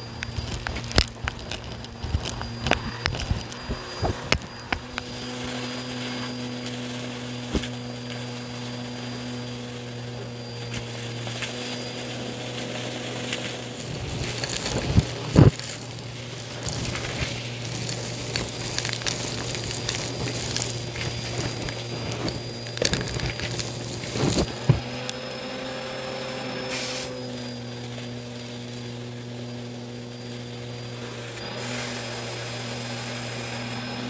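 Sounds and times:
debris rattling up hose: 0.0 - 34.0
vacuum cleaner running: 0.0 - 34.0.

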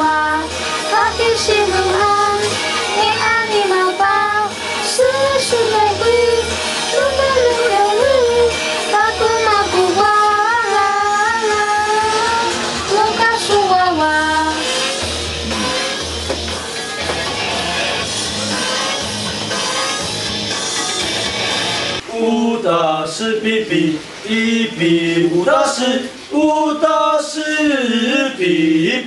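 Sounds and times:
person singing wavering melody: 0.0 - 16.1
karaoke backing music with beat: 0.0 - 29.0.

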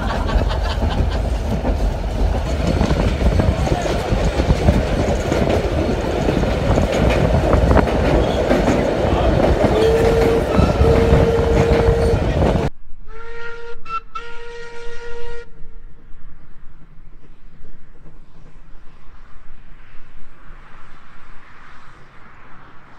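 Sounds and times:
steam train running: 0.0 - 12.7
steam locomotive whistle: 9.1 - 15.8.

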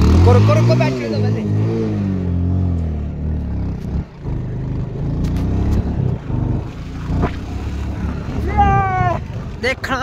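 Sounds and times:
vehicle engine humming: 0.0 - 10.0.

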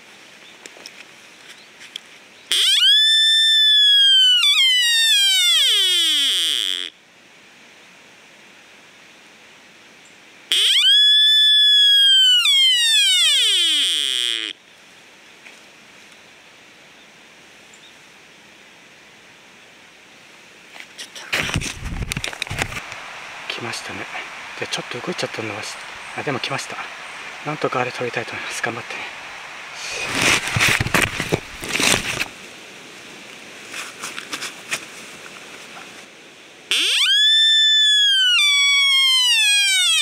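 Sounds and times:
deer call whistle: 2.5 - 6.9, 10.5 - 14.6, 36.7 - 40.0.

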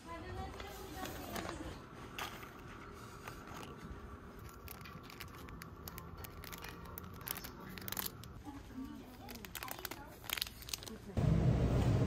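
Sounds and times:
faint steady hum: 0.0 - 12.0
plastic packaging clicks and crinkles: 3.2 - 11.2.

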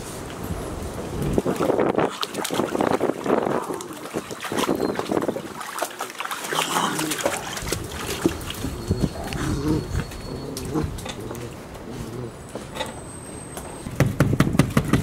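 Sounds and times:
puppies splashing in water: 1.2 - 12.5
puppy vocal sounds: 6.5 - 12.5.

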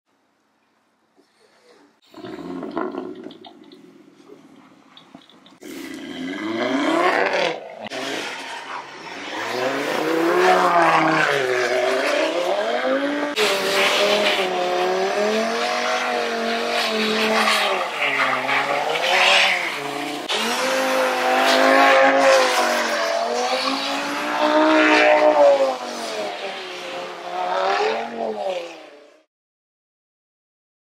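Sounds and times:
car engine revving: 5.2 - 28.9.

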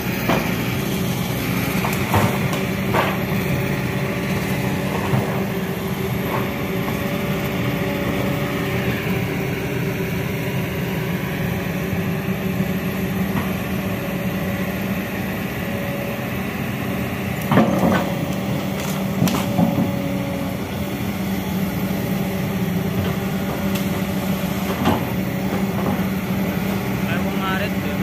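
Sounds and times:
excavator diesel engine running: 0.0 - 28.0
sharp cracks and knocks: 17.4 - 20.0.

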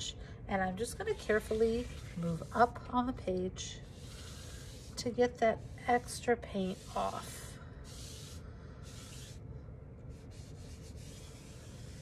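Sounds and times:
sponge scrubbing wet paper: 1.0 - 3.0, 3.8 - 9.4, 10.1 - 12.0.

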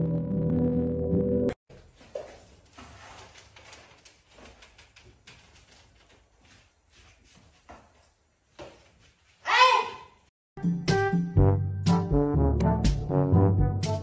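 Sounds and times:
sweeping on a hard floor: 1.7 - 9.5
cat exercise wheel moving: 2.0 - 8.1.

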